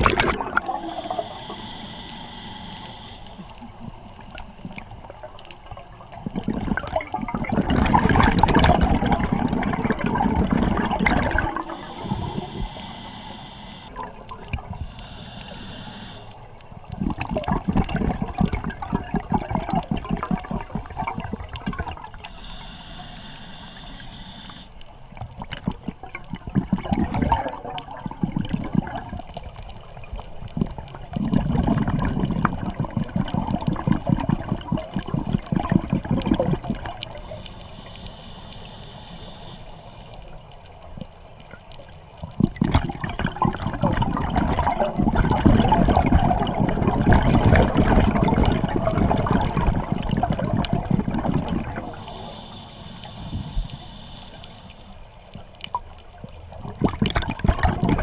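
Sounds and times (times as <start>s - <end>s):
faint hiss of breathing in: 0.0s - 5.6s, 10.8s - 16.7s, 20.4s - 25.2s, 37.0s - 41.4s, 51.4s - 55.5s
underwater exhaled bubbles rushing: 0.0s - 16.2s, 16.8s - 38.1s, 41.0s - 54.7s, 55.4s - 58.0s.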